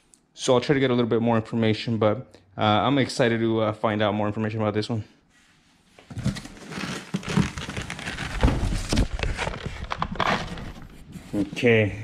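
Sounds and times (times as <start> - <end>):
cardboard box rustling and scraping: 6.0 - 11.7.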